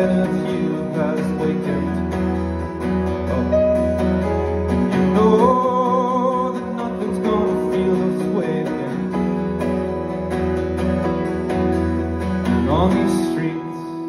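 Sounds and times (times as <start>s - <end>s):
man singing: 0.0s - 2.4s, 4.9s - 9.5s, 12.4s - 14.0s
acoustic guitar strumming: 0.0s - 14.0s.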